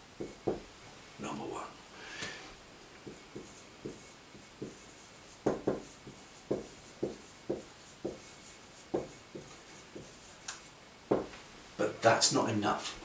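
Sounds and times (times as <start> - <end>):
marker writing on whiteboard: 0.2 - 0.7, 3.0 - 11.4.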